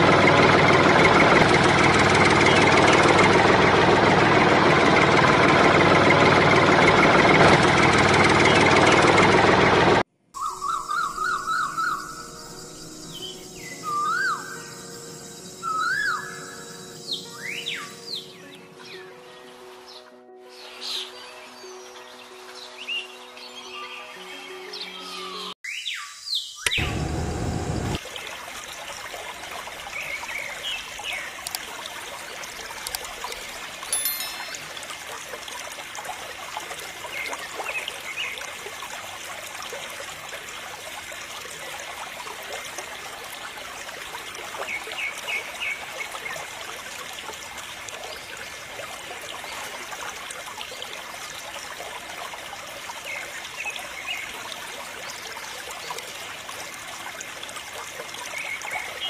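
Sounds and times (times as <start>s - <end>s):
water trickling and splashing: 28.0s - 59.0s.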